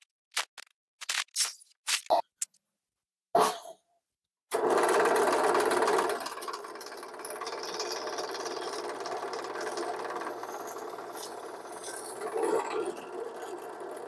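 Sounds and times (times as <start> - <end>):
drill press cutting plywood: 4.5 - 14.0.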